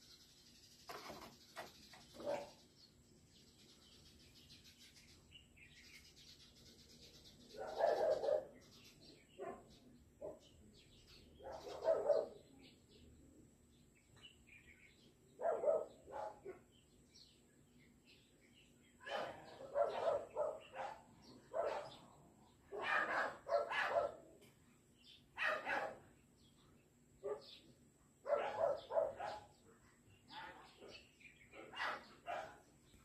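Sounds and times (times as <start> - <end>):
dog barking: 2.2 - 2.6, 7.6 - 8.6, 9.4 - 10.4, 11.4 - 12.5, 15.4 - 16.7, 19.0 - 22.0, 22.7 - 24.3, 25.4 - 26.1, 27.2 - 27.5, 28.2 - 29.6, 30.3 - 32.7.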